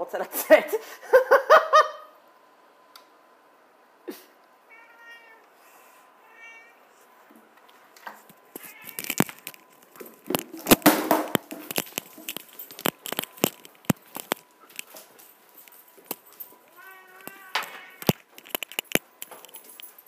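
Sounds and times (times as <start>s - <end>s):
cat meowing: 4.7s - 5.5s, 6.2s - 6.9s, 8.6s - 9.3s, 16.7s - 18.2s
rustling: 6.9s - 20.0s.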